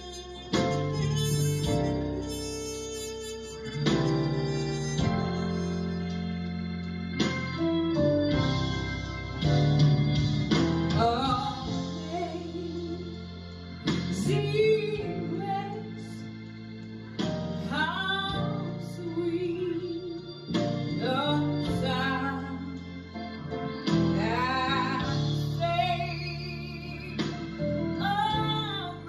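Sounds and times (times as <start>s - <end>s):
instrumental accompaniment: 0.0s - 29.0s
woman singing a slow song: 10.9s - 13.2s, 14.0s - 16.2s, 17.6s - 23.0s, 24.1s - 29.0s.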